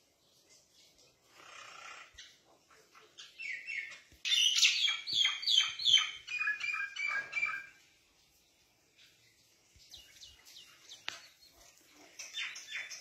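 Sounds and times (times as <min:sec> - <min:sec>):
bird chirping: 0:00.1 - 0:13.0.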